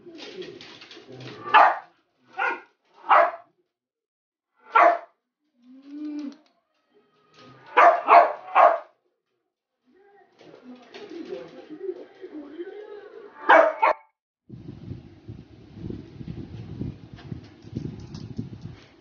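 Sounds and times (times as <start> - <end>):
small dog barking: 1.4 - 3.4, 4.7 - 5.1, 7.7 - 8.9, 13.4 - 14.0
low drawn-out dog sound: 13.4 - 14.0.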